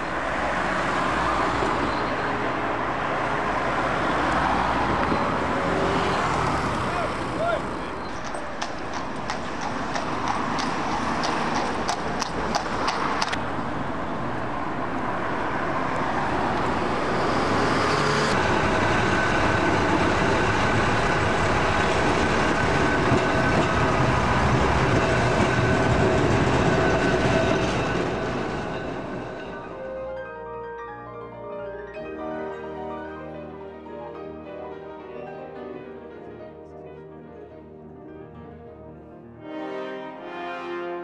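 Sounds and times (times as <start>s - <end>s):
bus running: 0.0s - 30.1s
traffic noise: 0.0s - 36.7s.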